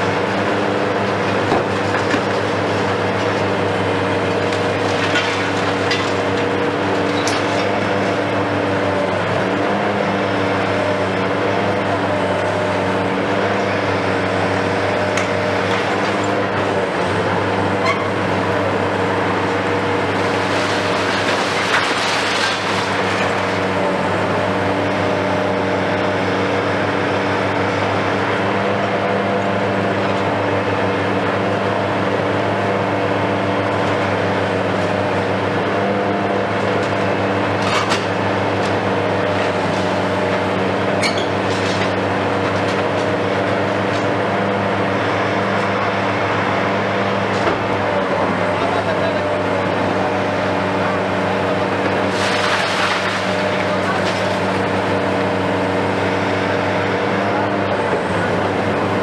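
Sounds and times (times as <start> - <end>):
excavator engine and hydraulics running: 0.0 - 59.0
concrete cracking and crunching: 0.1 - 8.6, 20.0 - 23.9, 51.7 - 55.4.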